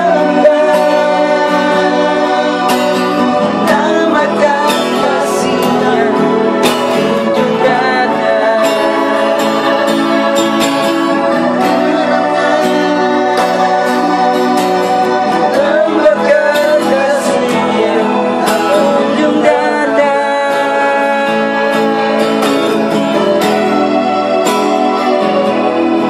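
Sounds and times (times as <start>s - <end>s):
acoustic guitar: 0.0s - 26.0s
person singing: 0.0s - 26.0s.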